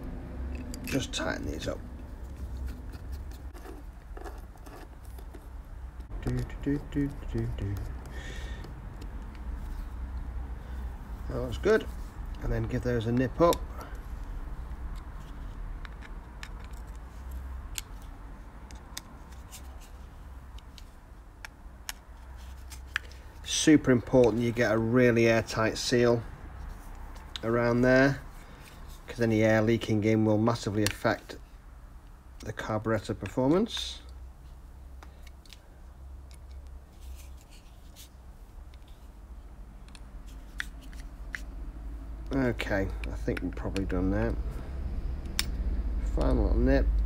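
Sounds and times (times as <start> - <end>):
low steady hum: 0.0 - 47.0
hand tool clicks and scrapes: 0.4 - 10.3, 11.5 - 23.4.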